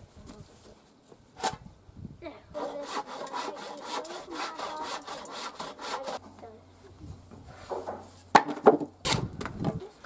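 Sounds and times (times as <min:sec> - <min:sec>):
hand saw cutting timber: 0:02.6 - 0:06.2.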